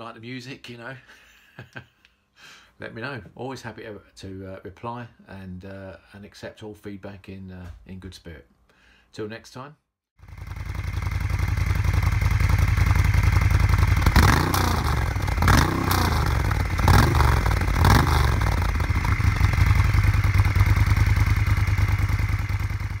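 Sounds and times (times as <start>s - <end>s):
motorcycle engine idling and revving: 10.2s - 23.0s.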